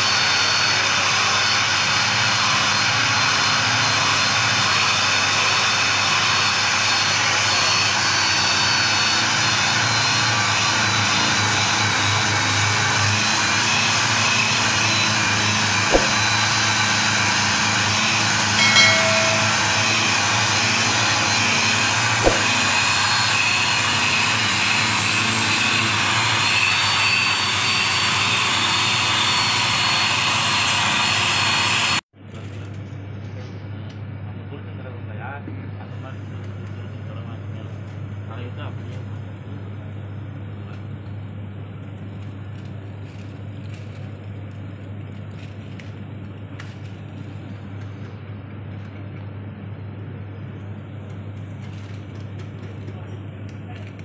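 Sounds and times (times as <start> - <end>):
sharp knocks: 15.9 - 16.3, 18.6 - 20.2, 22.2 - 22.8
brief higher-pitched sound: 18.6 - 20.6.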